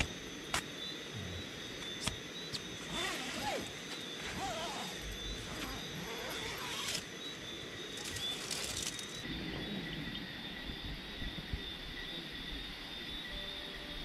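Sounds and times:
tent zipper pulled: 2.8 - 7.1.

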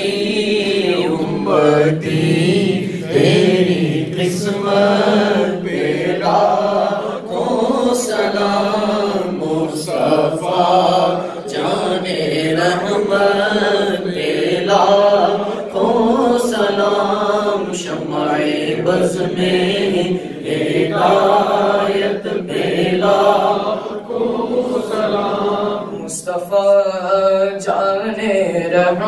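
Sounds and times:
male voices chanting: 0.0 - 26.3.

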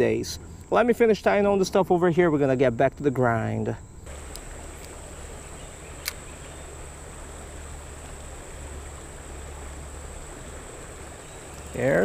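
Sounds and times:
water flowing over rocks: 4.1 - 12.0.

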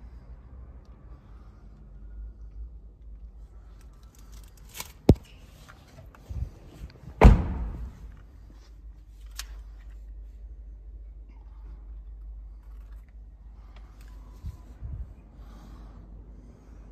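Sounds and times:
car door slam: 7.2 - 8.1.

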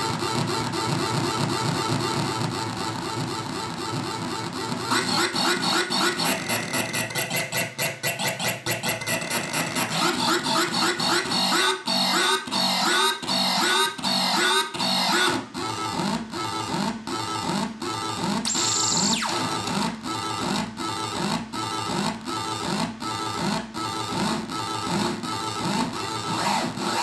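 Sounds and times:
glitchy synth tones: 4.8 - 15.4, 18.5 - 20.0.

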